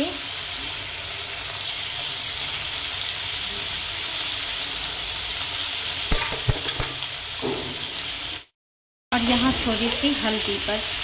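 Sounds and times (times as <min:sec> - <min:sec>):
onions and tomatoes sizzling: 0:00.0 - 0:11.0.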